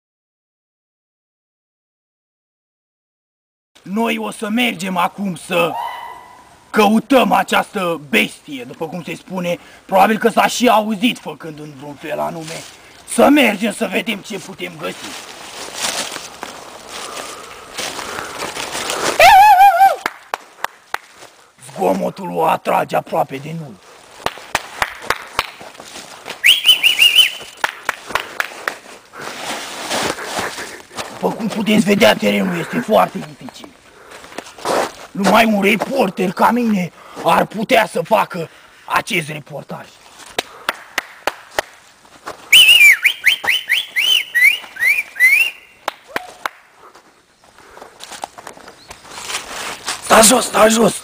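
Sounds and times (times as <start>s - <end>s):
warbling whistle: 5.7s - 6.5s, 26.4s - 27.6s, 42.5s - 45.8s
footsteps crunching leaves and snow: 11.0s - 22.2s, 23.1s - 37.5s, 39.8s - 40.7s, 41.4s - 51.0s.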